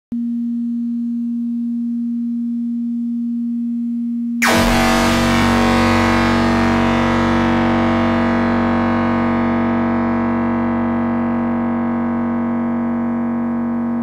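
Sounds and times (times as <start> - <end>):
harsh synthesized noise: 4.4 - 14.0
synthesizer low drone: 4.4 - 14.0.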